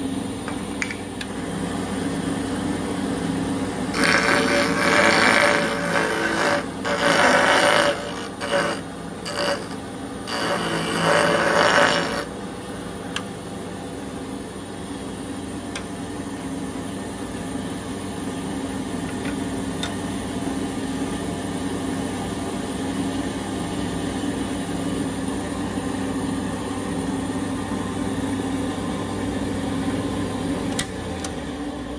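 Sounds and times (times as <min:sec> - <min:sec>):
band saw motor hum: 0:00.0 - 0:21.4.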